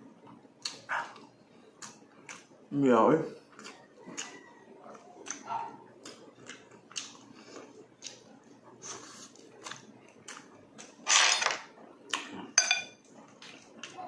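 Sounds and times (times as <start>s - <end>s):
mouth clicks and lip smacks: 0.6s - 2.5s, 5.2s - 8.3s
wet chewing: 3.4s - 11.0s.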